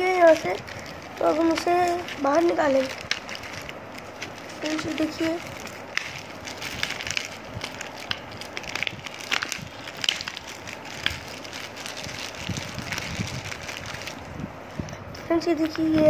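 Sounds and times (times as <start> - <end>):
plastic wrapping crinkling: 0.0 - 16.0.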